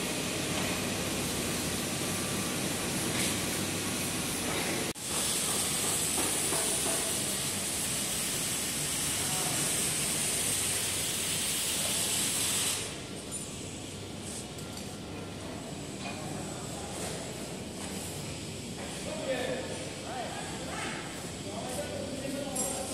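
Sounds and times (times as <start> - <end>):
workshop machinery running: 0.0 - 22.9
high hiss: 1.0 - 14.4.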